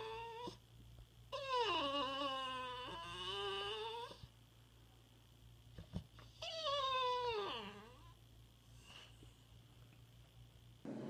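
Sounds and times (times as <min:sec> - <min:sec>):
dog whining: 0:00.0 - 0:00.6, 0:01.3 - 0:04.3, 0:06.2 - 0:08.2.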